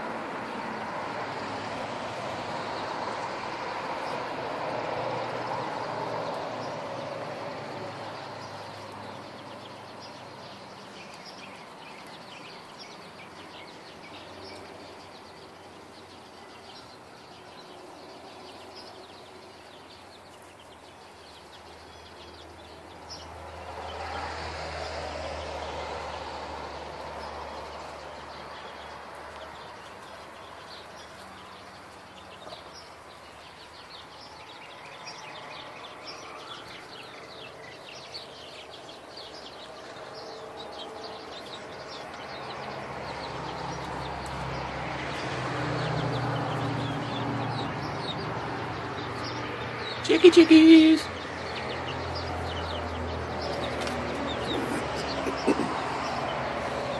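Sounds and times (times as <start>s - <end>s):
vehicles passing on road: 0.0s - 56.9s
bird chirps: 8.1s - 23.3s, 27.1s - 56.9s.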